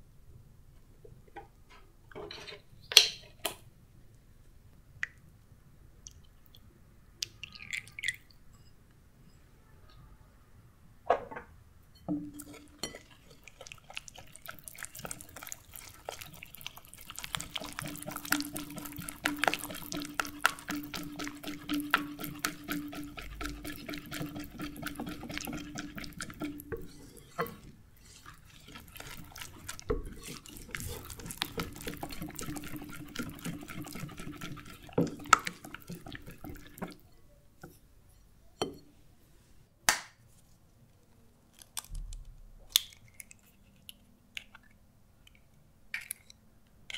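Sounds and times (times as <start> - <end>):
whisk clicking against glass bowl: 13.9 - 37.0
whisk knocks: 17.6 - 27.6.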